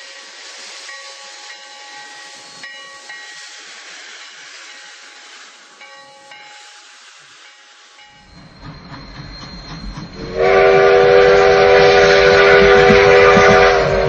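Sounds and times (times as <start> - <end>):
low rumble of running train: 0.0 - 14.0
steam locomotive whistle: 8.4 - 14.0.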